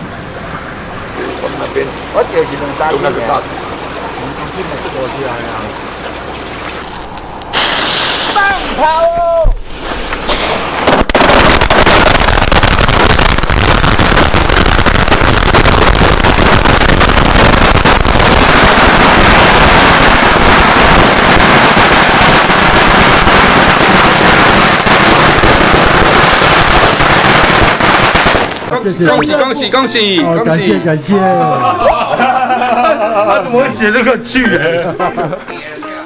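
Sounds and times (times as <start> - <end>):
firecrackers crackling: 6.8 - 9.0, 9.7 - 29.3.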